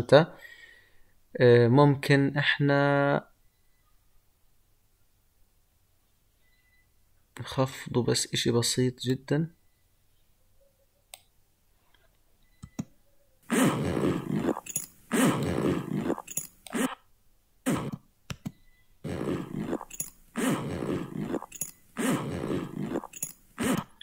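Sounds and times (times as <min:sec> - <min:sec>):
zipper rasping: 0:13.4 - 0:17.0, 0:17.7 - 0:18.0, 0:19.0 - 0:24.0.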